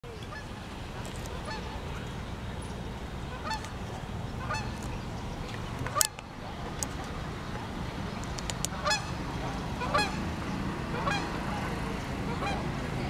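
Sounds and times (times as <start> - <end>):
short honking calls: 10.9 - 11.4.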